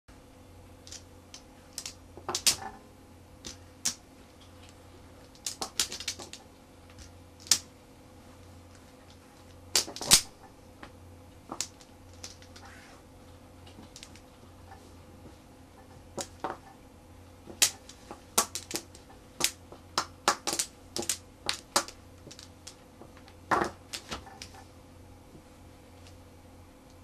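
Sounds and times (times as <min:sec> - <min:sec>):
mahjong tiles clacking: 0:00.8 - 0:02.7, 0:05.2 - 0:06.4, 0:07.0 - 0:07.6, 0:11.5 - 0:12.6, 0:13.9 - 0:14.2, 0:17.6 - 0:22.8.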